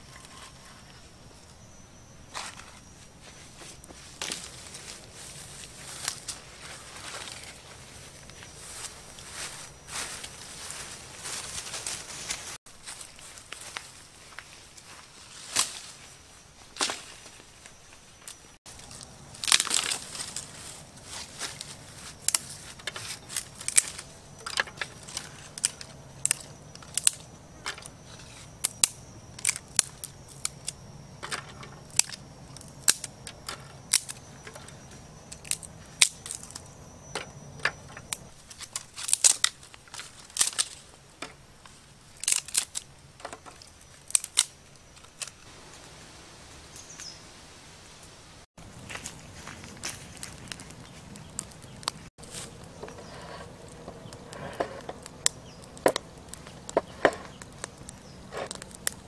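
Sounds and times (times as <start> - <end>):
dry twigs snapping: 18.7 - 40.8, 41.6 - 45.5, 48.7 - 59.0.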